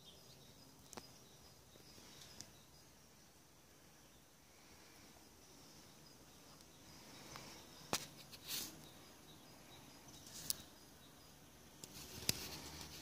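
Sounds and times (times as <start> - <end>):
high chirping of birds or insects: 0.0 - 13.0.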